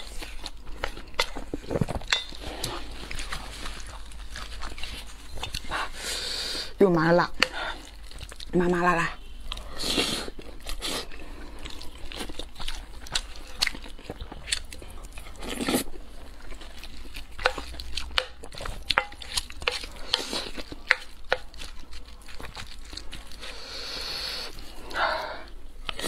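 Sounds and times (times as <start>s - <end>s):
wet chewing and lip smacks: 0.0s - 6.0s, 7.4s - 26.0s.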